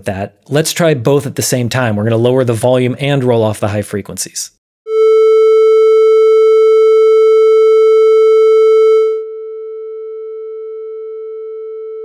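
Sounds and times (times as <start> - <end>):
triangle-wave test tone: 4.9 - 12.0.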